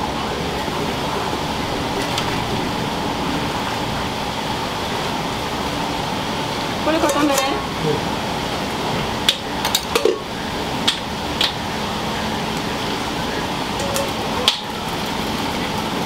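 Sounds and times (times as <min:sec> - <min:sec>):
kitchen noise hiss: 0:00.0 - 0:16.0.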